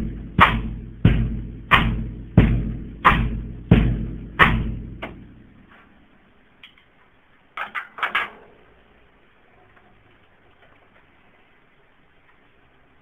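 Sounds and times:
percussive thumps ringing out: 0.0 - 5.3.

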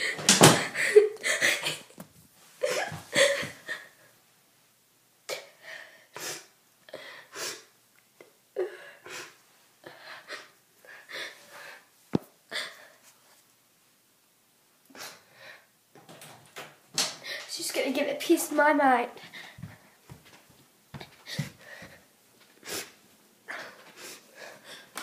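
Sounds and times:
girl sobbing: 0.0 - 2.0, 2.6 - 4.1, 8.6 - 11.4.

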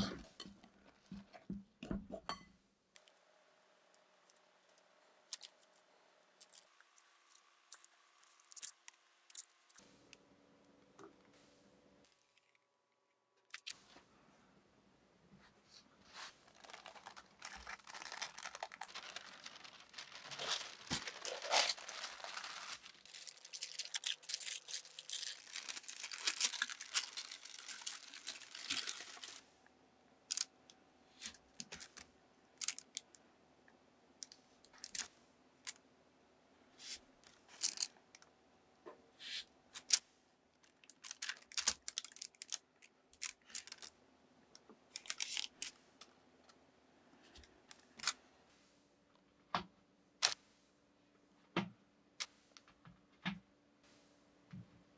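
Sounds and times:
parchment paper crinkling: 6.4 - 9.8, 16.1 - 29.5, 31.2 - 33.1, 34.2 - 35.1, 40.6 - 43.9, 44.9 - 45.7.

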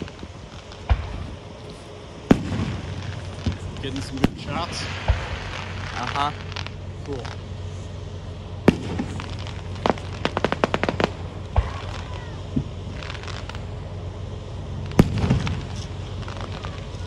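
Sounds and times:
fireworks bangs: 0.0 - 1.6, 2.2 - 17.0
crackling reports: 0.0 - 17.0
low boom: 8.6 - 13.7, 14.8 - 17.0.

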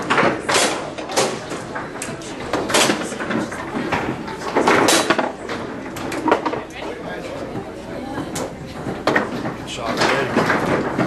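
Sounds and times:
foosball clacks: 0.0 - 7.0, 8.3 - 11.0.

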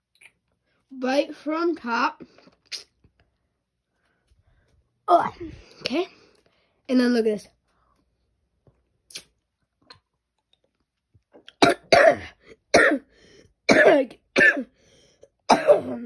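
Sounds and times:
person coughing harshly: 11.6 - 13.1, 13.7 - 14.7, 15.5 - 16.0.

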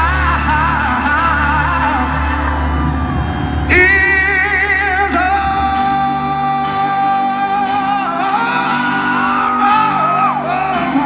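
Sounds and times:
man singing long notes: 0.0 - 11.0
rock band playing: 0.0 - 11.0.

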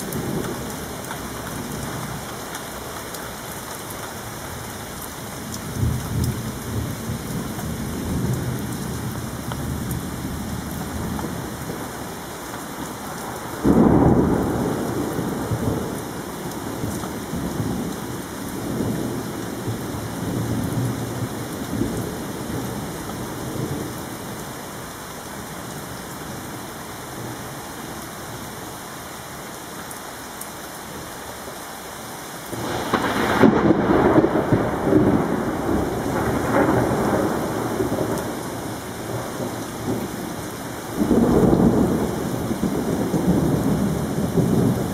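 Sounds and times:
steady rain: 0.0 - 44.9
thunder rumbling: 12.8 - 24.0, 32.5 - 44.9.

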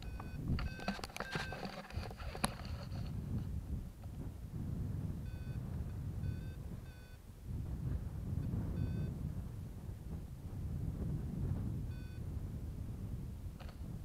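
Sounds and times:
short high beeps: 0.0 - 1.7, 5.3 - 5.6, 6.2 - 7.2, 11.9 - 12.2
wind buffeting microphone: 0.0 - 14.0.

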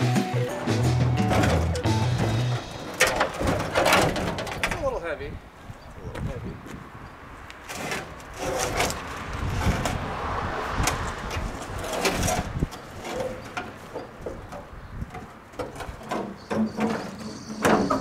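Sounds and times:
knocks scrapes and clatter: 1.0 - 5.2, 7.6 - 18.0.

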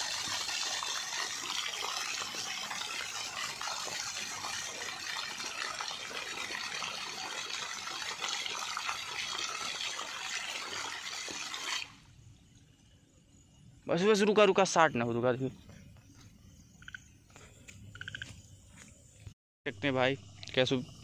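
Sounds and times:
water spraying from burst pipe: 0.0 - 12.1.

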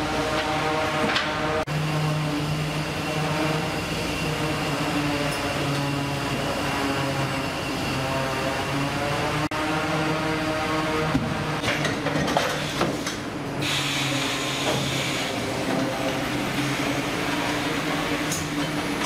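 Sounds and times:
conveyors and machines droning: 0.0 - 19.0.

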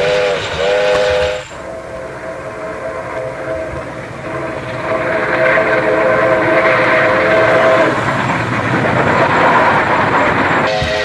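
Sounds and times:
steam locomotive whistle: 0.0 - 8.2, 10.6 - 11.0
passing train rumble and clatter: 0.0 - 11.0.

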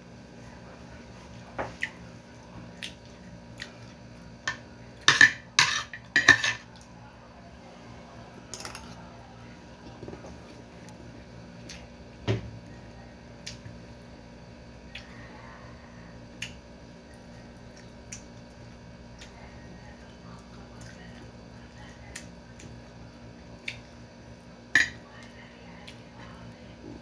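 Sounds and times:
faint steady hum: 0.0 - 27.0
cutlery tapping a plate: 4.5 - 6.6.

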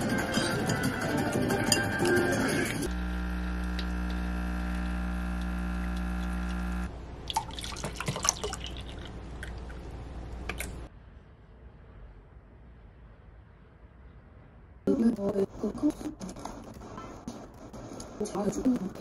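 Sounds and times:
machine hum: 0.0 - 6.9
water pouring into glass cup: 7.3 - 9.8.

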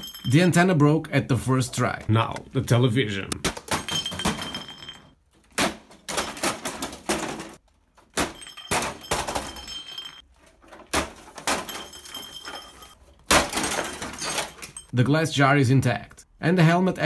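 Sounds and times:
hard plastic clattering: 3.4 - 14.9.

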